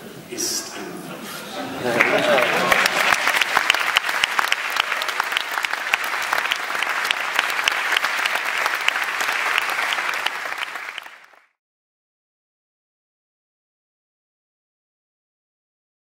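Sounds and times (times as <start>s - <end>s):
audience applauding: 1.6s - 11.6s.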